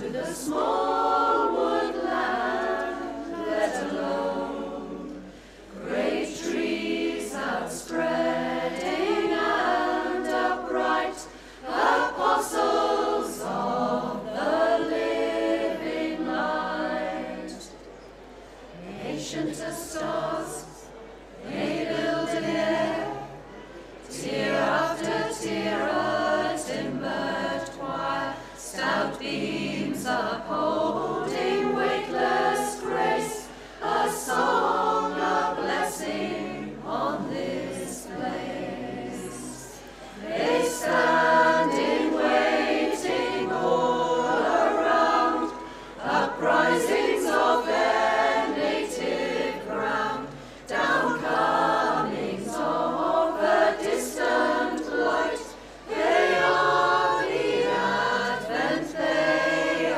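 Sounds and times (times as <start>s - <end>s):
women's choir singing: 0.0s - 59.9s.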